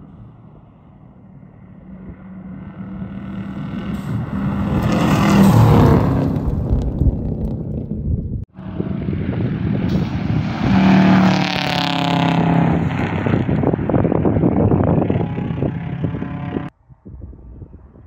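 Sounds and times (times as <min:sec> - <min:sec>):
gravel crackling under tyres: 0:00.0 - 0:10.0
distant car: 0:00.0 - 0:16.7
rally car passing at speed: 0:01.2 - 0:07.8, 0:08.6 - 0:16.7.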